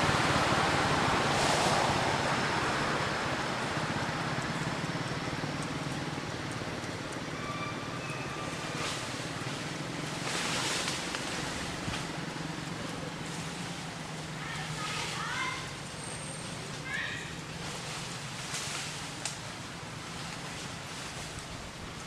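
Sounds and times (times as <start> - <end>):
outdoor background hiss: 7.9 - 22.0.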